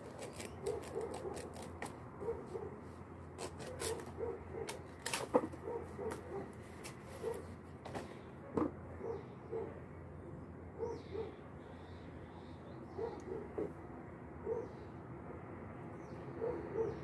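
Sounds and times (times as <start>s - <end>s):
leaves being torn by hand: 0.0s - 2.0s, 3.4s - 7.4s.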